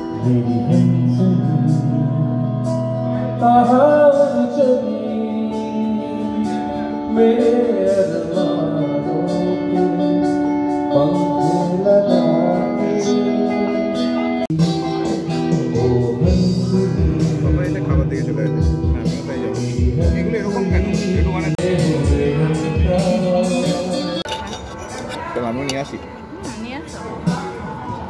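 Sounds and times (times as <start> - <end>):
song with beat: 5.5 - 24.3.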